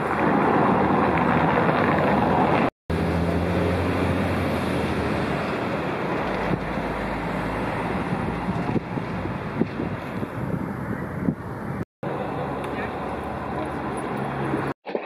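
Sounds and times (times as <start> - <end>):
wind rumbling on microphone: 0.0 - 2.7, 5.3 - 11.8
car engines running: 0.0 - 14.8.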